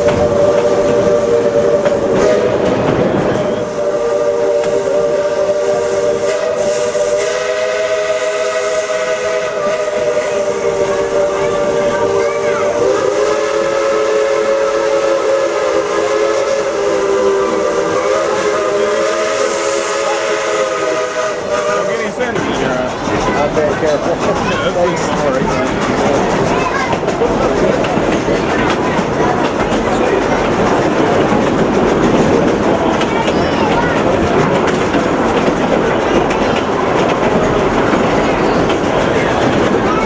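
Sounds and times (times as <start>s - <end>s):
steam locomotive whistle: 0.0s - 22.2s
steam hissing: 0.0s - 40.0s.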